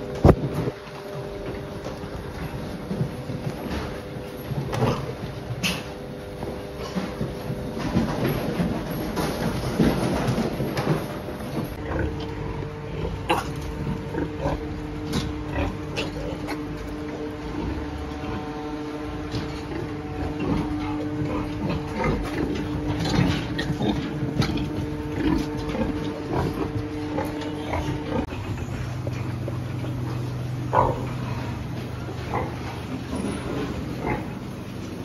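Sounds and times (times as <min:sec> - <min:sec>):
pigs grunting and squealing: 0:04.6 - 0:07.2, 0:11.7 - 0:34.8
steady two-note hum: 0:11.8 - 0:32.1.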